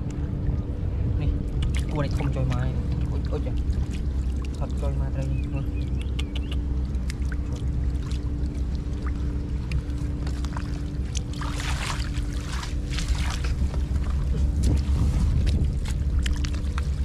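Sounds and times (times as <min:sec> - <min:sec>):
steady low rumble: 0:00.0 - 0:17.0
splashing in shallow water: 0:01.4 - 0:17.0
small clicks and drips: 0:01.5 - 0:17.0.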